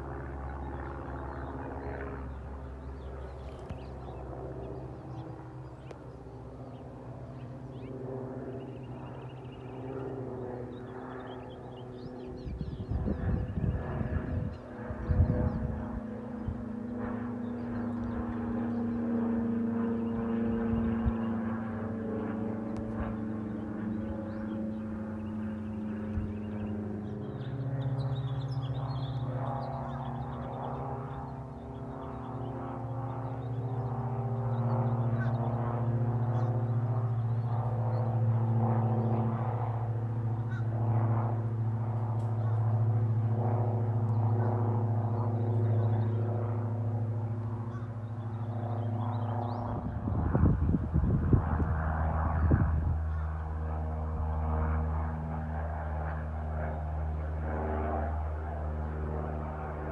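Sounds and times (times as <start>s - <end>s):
light plane engine droning: 0.0s - 59.9s
propeller plane low drone: 0.0s - 59.9s.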